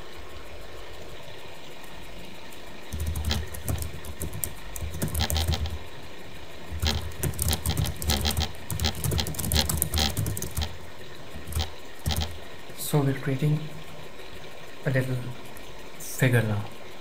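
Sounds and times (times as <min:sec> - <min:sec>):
keyboard typing: 0:02.9 - 0:05.9, 0:06.7 - 0:12.4.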